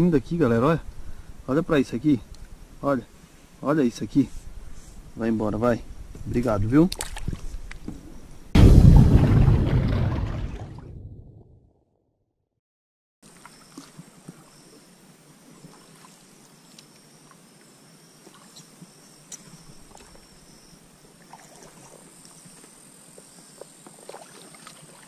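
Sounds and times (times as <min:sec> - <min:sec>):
faint water movement: 0:13.2 - 0:25.0.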